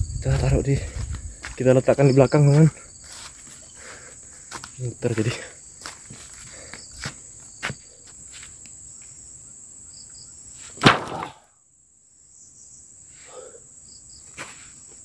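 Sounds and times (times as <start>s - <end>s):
insects chirring: 0.0s - 15.0s
log thudding down: 10.8s - 11.5s.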